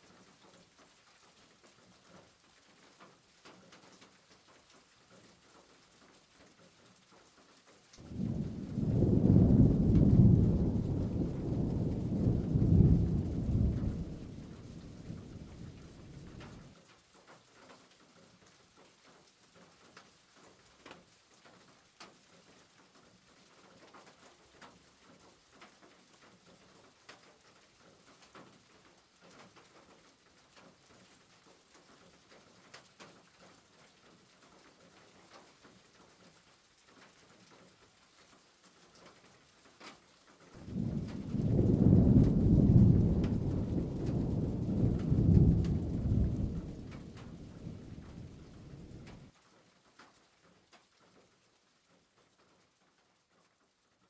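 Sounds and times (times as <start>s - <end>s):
fritters frying in hot oil: 0.0s - 53.7s
low rumble: 40.6s - 49.2s.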